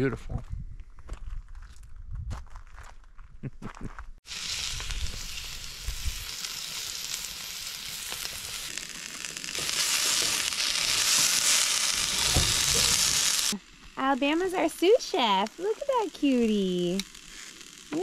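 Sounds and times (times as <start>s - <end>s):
vegetables sizzling in a pan: 4.2s - 18.0s
steaks sizzling in a skillet: 4.3s - 18.0s.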